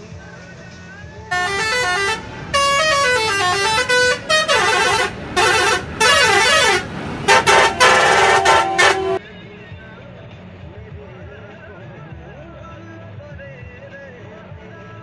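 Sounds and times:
truck musical horn blasts: 1.3 - 9.2.

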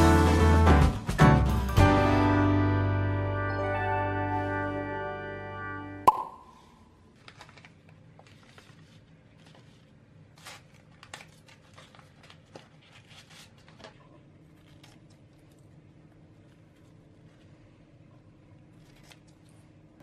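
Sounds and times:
paper packets crinkling and tearing: 7.1 - 15.6.

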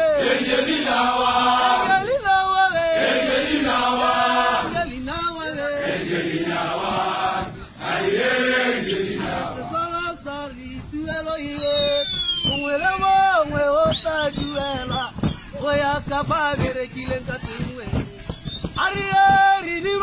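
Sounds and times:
group singing in unison: 0.0 - 10.6.

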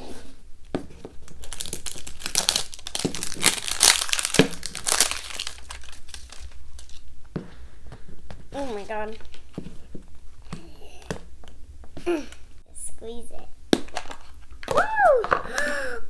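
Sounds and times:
wrapper crinkling and tearing: 1.2 - 7.1.

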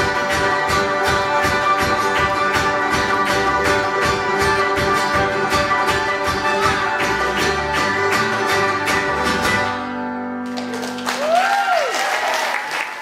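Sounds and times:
string band playing folk song: 0.0 - 11.0
audience applause and cheer: 10.4 - 13.0.

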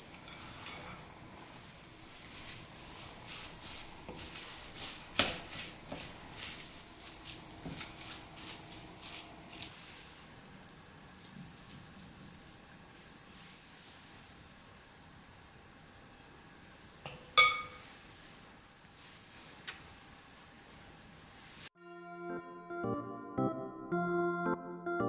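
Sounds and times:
spatula wet scraping and squishing: 0.1 - 16.2, 17.7 - 19.8.

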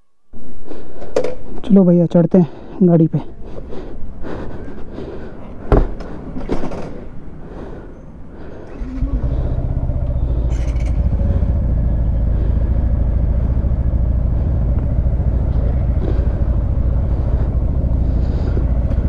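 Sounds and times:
motorcycle engine idling: 8.6 - 19.0.

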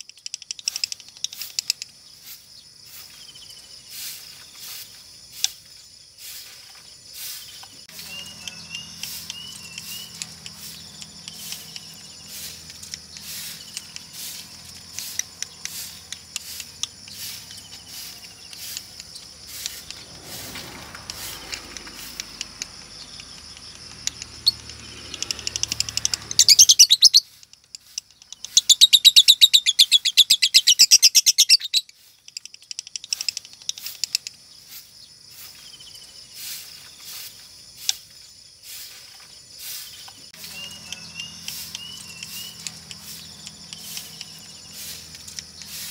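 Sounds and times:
lovebird chirps and clicks: 0.0 - 2.4, 7.3 - 34.6, 39.7 - 45.9
bird fast trill: 7.2 - 34.8, 39.6 - 45.9.

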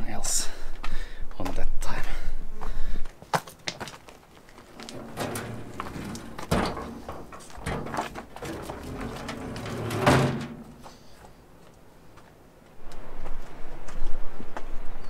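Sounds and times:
heavy metal door knocks and scrapes: 4.7 - 10.9.

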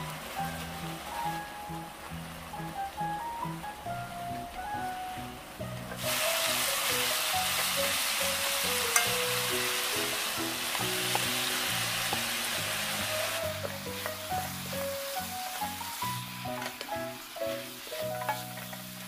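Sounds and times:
pork sizzling in a pan: 0.0 - 19.0.

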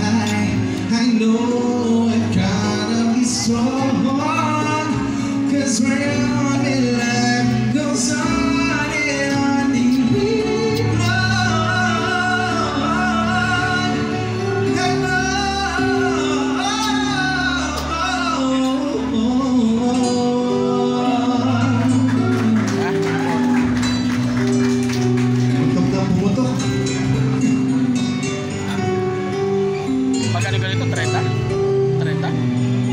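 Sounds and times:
live band with singer: 0.0 - 32.9.

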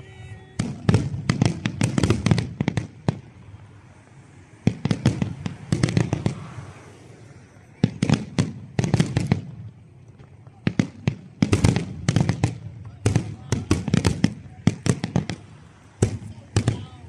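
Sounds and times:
firework shells bursting: 7.8 - 17.0.

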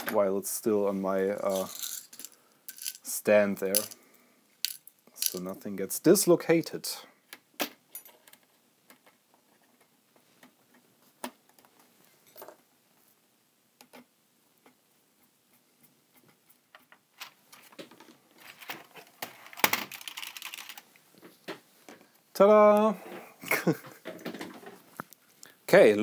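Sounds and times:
plastic keyboard clattering: 17.7 - 20.8.

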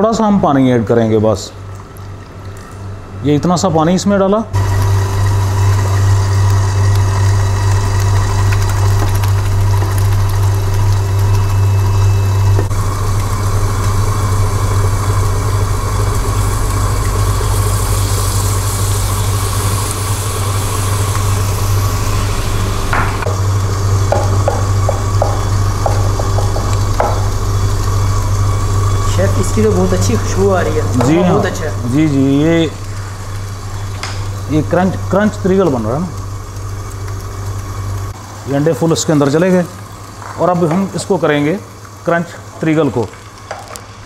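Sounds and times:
stand mixer motor humming: 4.6 - 32.0.

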